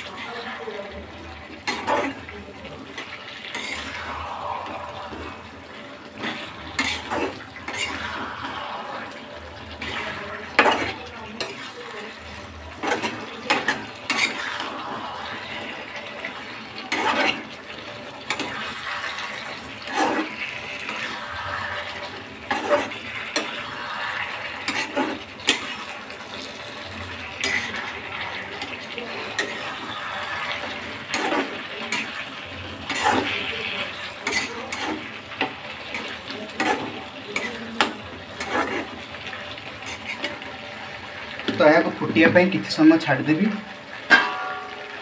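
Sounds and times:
metal spatula scraping pan: 0.0 - 42.8, 44.0 - 45.0
pan hissing: 3.5 - 10.9, 12.8 - 17.5, 18.3 - 26.4.

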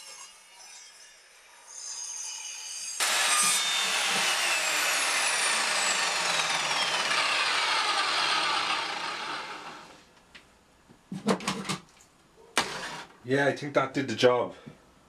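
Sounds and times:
mitre saw spinning down: 3.0 - 10.0, 12.6 - 13.2.

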